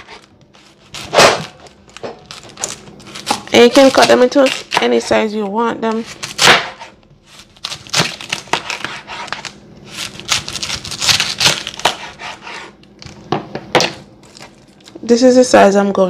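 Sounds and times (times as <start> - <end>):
knife slicing cabbage: 0.0 - 12.8.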